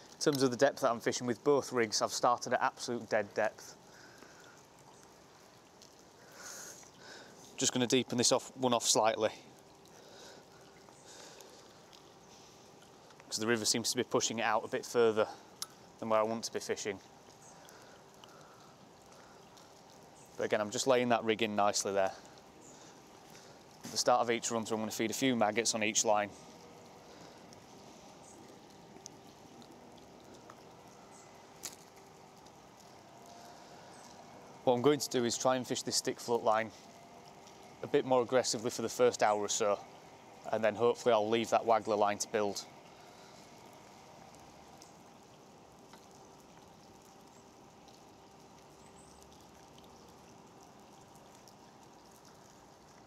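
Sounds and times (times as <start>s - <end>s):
faint steady hum: 0.0s - 53.0s
light rain on river: 0.0s - 53.0s
small ticks: 3.5s - 8.2s, 9.1s - 13.3s, 15.3s - 24.0s, 26.3s - 34.6s, 35.7s - 37.8s, 42.6s - 53.0s.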